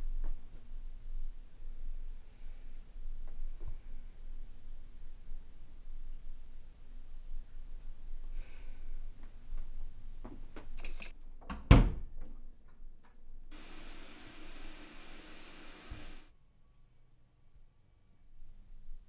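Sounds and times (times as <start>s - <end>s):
steady hiss: 13.5s - 16.3s.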